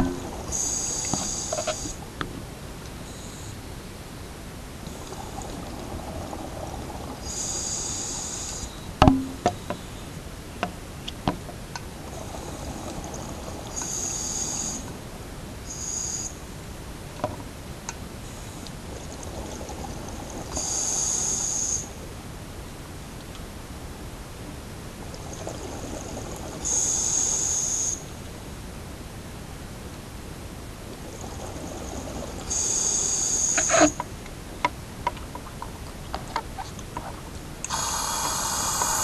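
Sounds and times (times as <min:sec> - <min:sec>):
underwater breathing gear hiss: 0:00.3 - 0:02.0, 0:07.2 - 0:08.7, 0:20.6 - 0:21.9, 0:31.8 - 0:34.0, 0:37.7 - 0:39.0.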